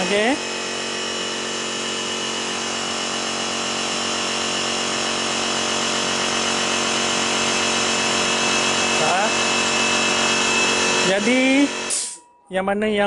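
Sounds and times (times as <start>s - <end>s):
air compressor running: 0.0s - 12.3s.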